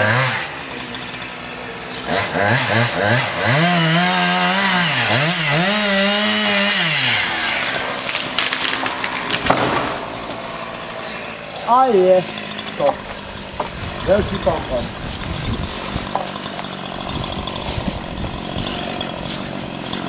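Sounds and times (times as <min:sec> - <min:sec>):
chainsaw cutting at high revs: 0:00.0 - 0:20.0
sharp loud wood crack: 0:05.0 - 0:11.0, 0:12.2 - 0:20.0
branches cracking and crashing: 0:05.2 - 0:20.0.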